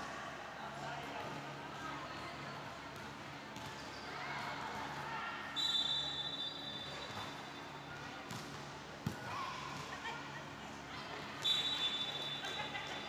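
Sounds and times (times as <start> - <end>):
chatter of players and spectators: 0.0 - 13.0
referee's whistle blast: 5.6 - 6.8, 11.4 - 12.4.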